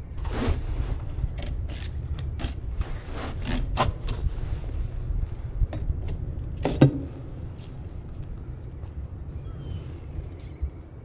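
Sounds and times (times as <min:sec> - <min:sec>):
low steady rumble: 0:00.0 - 0:11.0
knife scraping along fish: 0:01.4 - 0:04.3.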